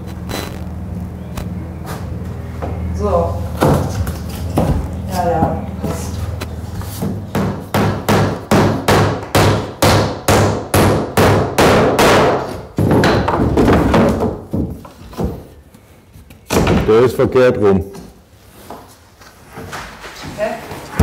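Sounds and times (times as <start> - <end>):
rough continuous noise: 0.0 - 21.0
hammer striking wood: 7.0 - 15.4.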